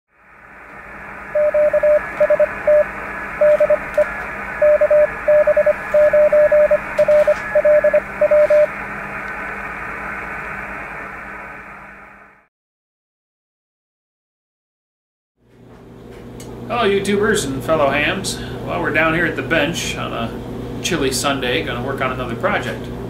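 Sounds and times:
shortwave receiver hiss: 0.4 - 11.4
morse code beeps: 1.4 - 8.7.

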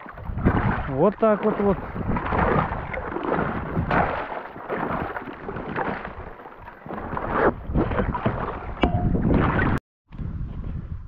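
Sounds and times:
footsteps crunching through ice and slush: 0.0 - 8.2.

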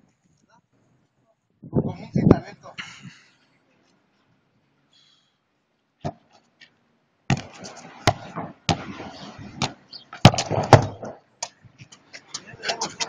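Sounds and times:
rough rustling noise: 6.2 - 13.0
football thuds on concrete: 7.3 - 9.0, 9.6 - 11.2.

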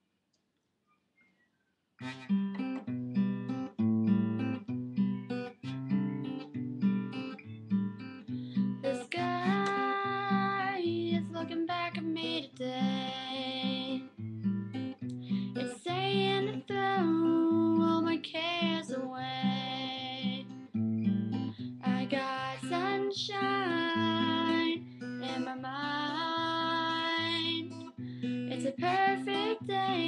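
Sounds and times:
acoustic guitar chords: 2.0 - 30.0.

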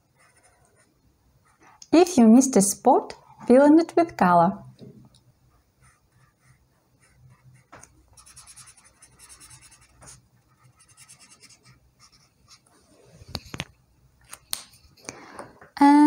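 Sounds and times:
marker scribbling on paper: 0.1 - 0.9, 5.8 - 12.6.

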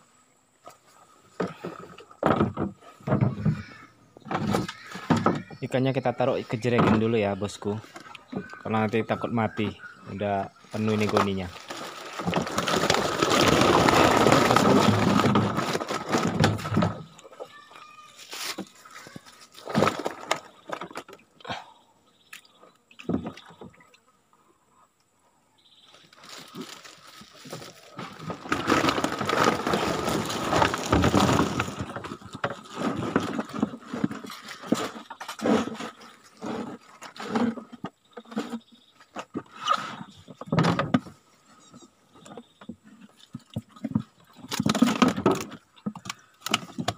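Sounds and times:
water splashing and sloshing: 10.6 - 17.5, 26.1 - 41.4, 42.3 - 46.9.

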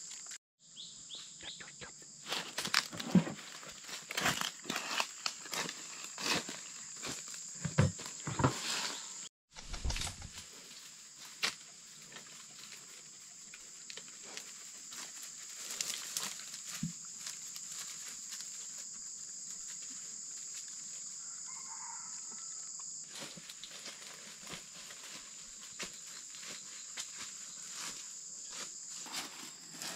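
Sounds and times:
clicks and rustles in dry grass: 9.6 - 21.0, 23.1 - 29.9
high insect drone: 10.4 - 29.9.

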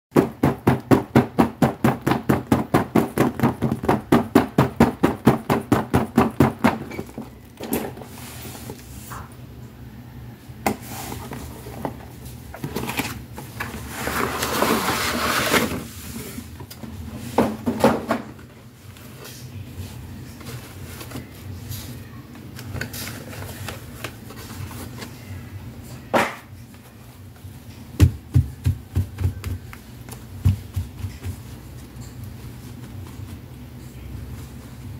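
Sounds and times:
rapid tapping on packaging: 0.1 - 6.9, 28.0 - 31.6.

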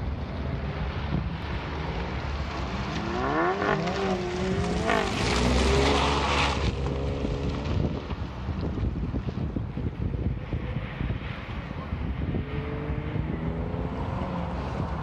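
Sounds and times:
wind rumble on microphone: 0.0 - 15.0
car engine revving: 0.5 - 7.9, 11.6 - 15.0.

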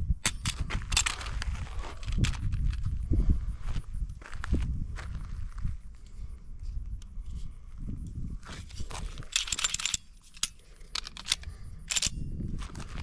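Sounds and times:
wind rumble on microphone: 0.0 - 13.0
pistol metallic clicks and rattles: 0.1 - 3.0, 8.6 - 13.0.

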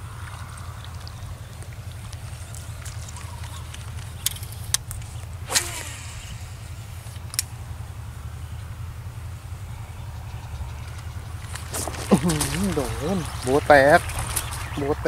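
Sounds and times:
sharp ticks: 0.0 - 6.4, 10.0 - 15.0
steady low rumble: 0.0 - 15.0.

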